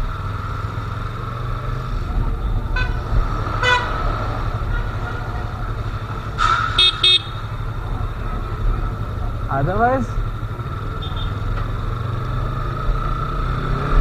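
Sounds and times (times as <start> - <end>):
motorcycle engine running: 0.0 - 13.7
vehicle horn toots: 3.6 - 4.0, 6.8 - 7.5, 11.0 - 11.4.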